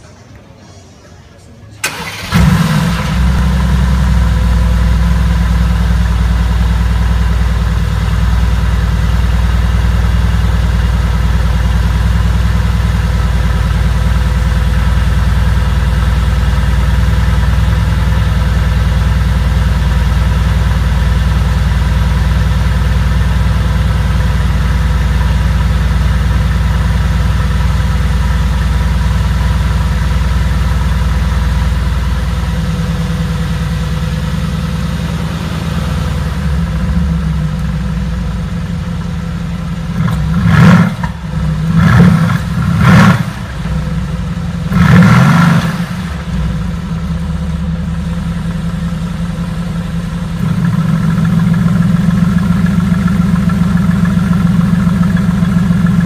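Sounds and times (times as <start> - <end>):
car engine idling: 1.8 - 56.0.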